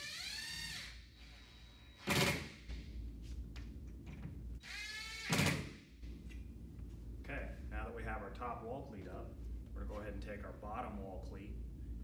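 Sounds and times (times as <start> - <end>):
drill driving screws: 0.0 - 2.5.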